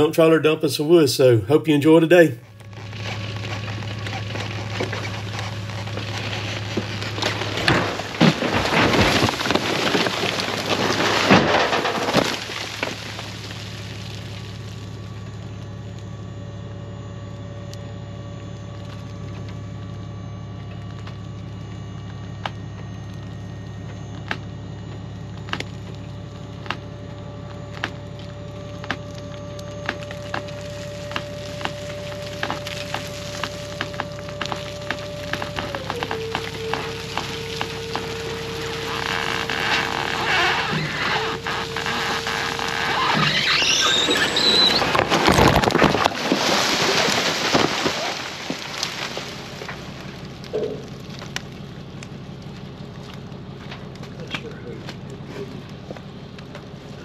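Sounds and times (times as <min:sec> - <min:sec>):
steady low hum: 0:00.0 - 0:43.6, 0:44.6 - 0:57.0
logs tumbling out of trailer: 0:02.6 - 0:15.1, 0:29.2 - 0:57.0.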